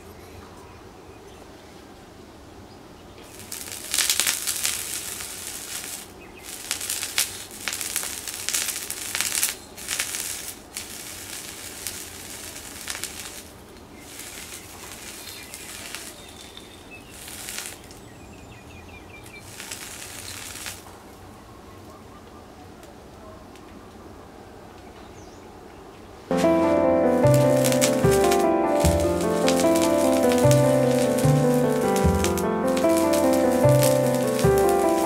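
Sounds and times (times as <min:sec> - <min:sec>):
sausage sizzling on hot metal: 0:03.4 - 0:16.2, 0:27.3 - 0:35.0.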